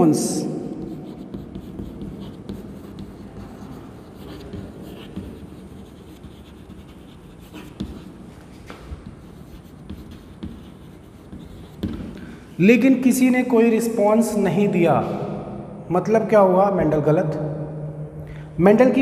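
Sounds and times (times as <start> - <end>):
chalk scratching on chalkboard: 0.8 - 12.4.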